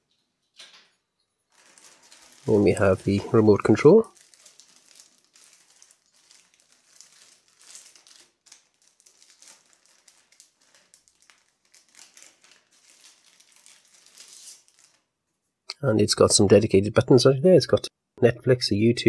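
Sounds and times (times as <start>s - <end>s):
plastic bag crinkling: 1.5s - 15.2s.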